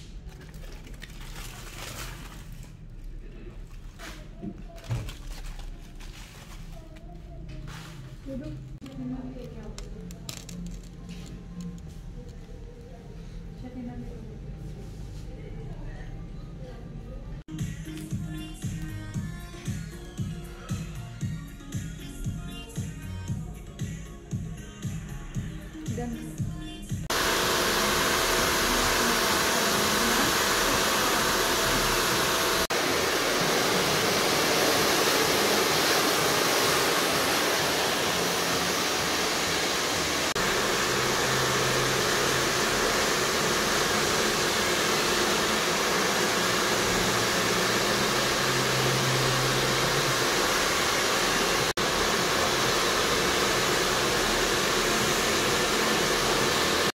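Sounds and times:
hair dryers running: 27.0 - 57.0.

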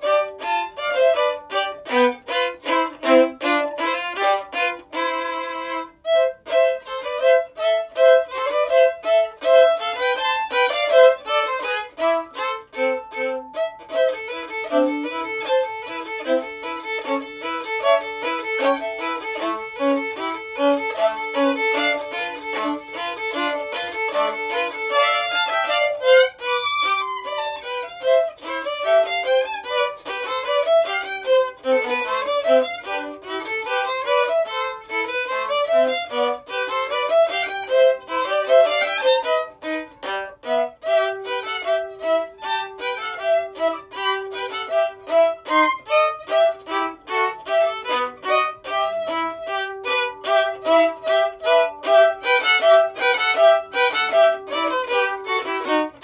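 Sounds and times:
solo violin melody: 0.0 - 56.0.

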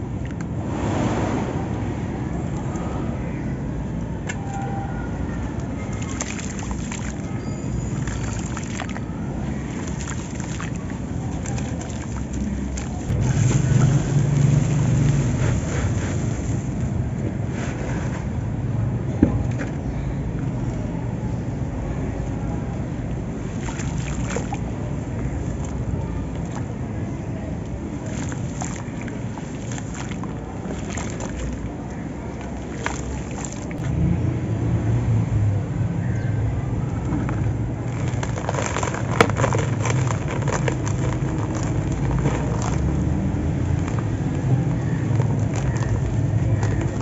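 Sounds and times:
steady low rumble: 0.0 - 47.0
hands squishing wet sand in water: 5.5 - 17.0, 23.1 - 34.0, 37.3 - 47.0
dry sand pouring and rattling: 37.9 - 44.4.

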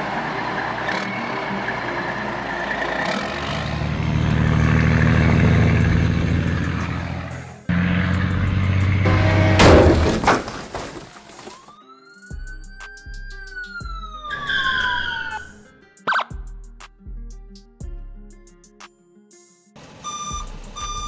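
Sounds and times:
engine sound: 0.0 - 10.0
truck engine running: 0.0 - 10.3, 19.8 - 21.0
loud crash: 9.3 - 11.1.

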